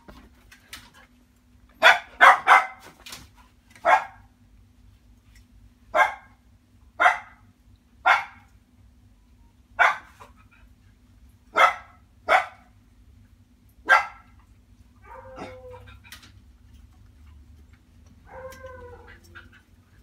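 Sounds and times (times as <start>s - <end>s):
dog barking: 1.8s - 2.8s, 3.8s - 4.3s, 6.0s - 6.4s, 7.0s - 7.4s, 8.0s - 8.5s, 9.8s - 10.2s, 11.5s - 12.7s, 13.8s - 14.3s.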